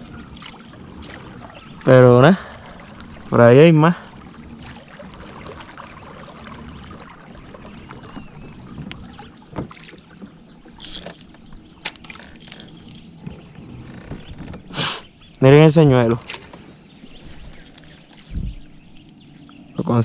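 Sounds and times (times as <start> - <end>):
high chirp: 8.0 - 8.8.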